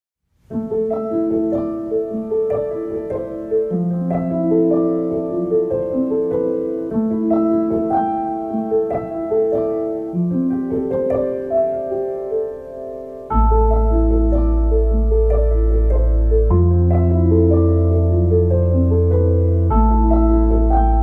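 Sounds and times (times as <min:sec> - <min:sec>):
slow piano music: 0:00.4 - 0:21.0.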